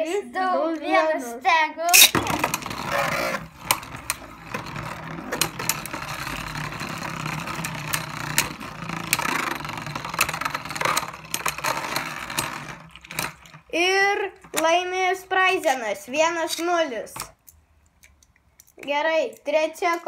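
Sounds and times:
tops clacking together: 0:01.9 - 0:13.6
spinning tops whirring: 0:01.9 - 0:16.8.

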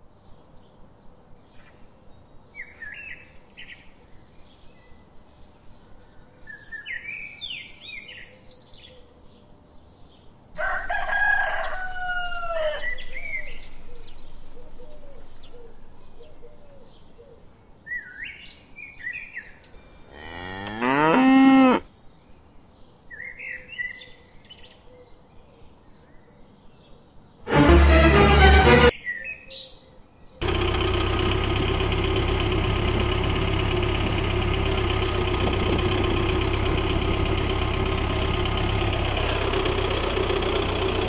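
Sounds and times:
loud animal call: 0:10.6 - 0:16.9, 0:19.9 - 0:21.9
small birds chirping: 0:10.9 - 0:25.2
cow mooing: 0:20.0 - 0:21.9.

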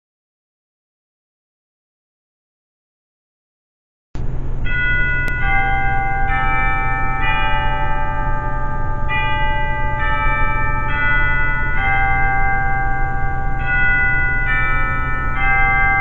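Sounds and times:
steady low hum: 0:04.2 - 0:16.0
pipe organ chords: 0:04.6 - 0:16.0.

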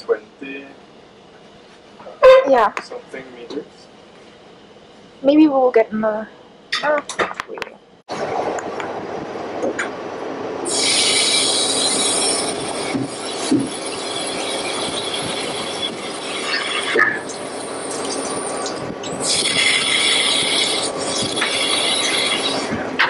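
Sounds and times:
ship deck machinery running: 0:00.0 - 0:23.0
high-pitched squealing: 0:10.7 - 0:22.9.

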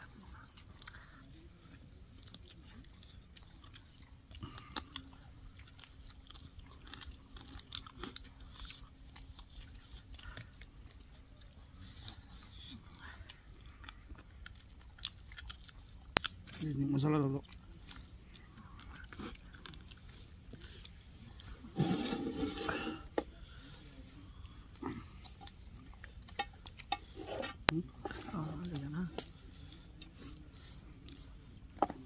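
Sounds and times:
chewing and biting: 0:00.0 - 0:32.0
mouth clicks and smacks: 0:11.8 - 0:16.6.

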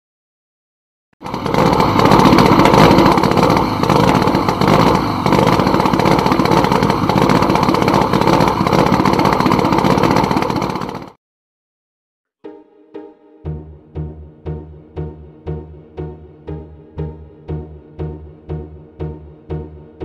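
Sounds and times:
car engine running loud: 0:01.2 - 0:11.2.

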